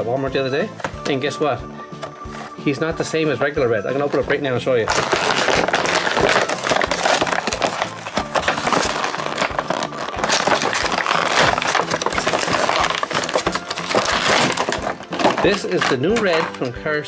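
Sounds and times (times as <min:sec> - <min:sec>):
plastic packaging crackling and tearing: 0:04.0 - 0:16.7.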